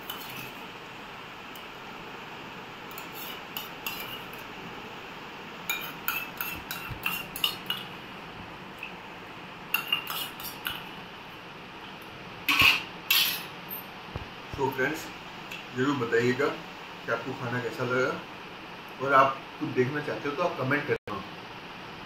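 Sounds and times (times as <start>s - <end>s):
metal spoon scraping steel bowl: 0.0s - 0.5s, 2.9s - 4.3s, 5.7s - 7.9s, 9.8s - 10.8s, 12.5s - 13.5s.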